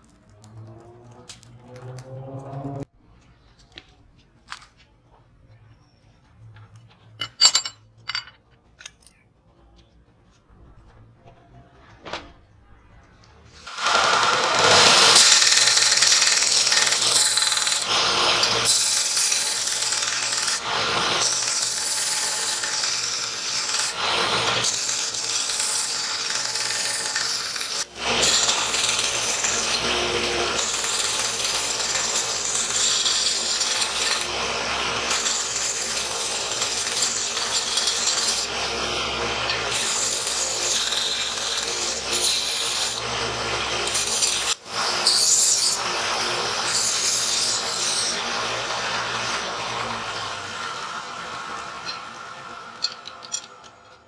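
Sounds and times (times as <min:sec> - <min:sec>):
belt grinder grinding metal: 0:13.7 - 0:54.0.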